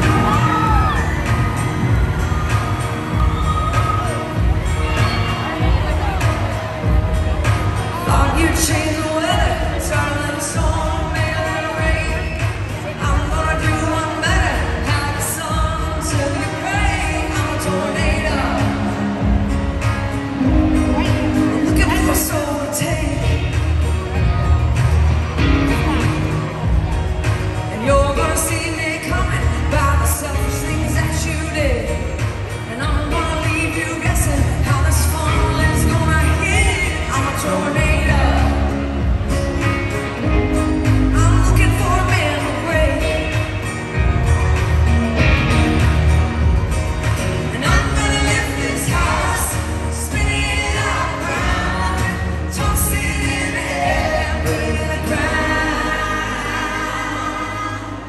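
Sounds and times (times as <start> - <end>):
acoustic guitar: 0.0 - 58.0
bass: 0.0 - 58.0
drums: 0.0 - 58.0
live country-pop band: 0.0 - 58.0
woman singing: 7.9 - 24.3, 27.6 - 39.2, 40.2 - 43.6, 47.4 - 58.0.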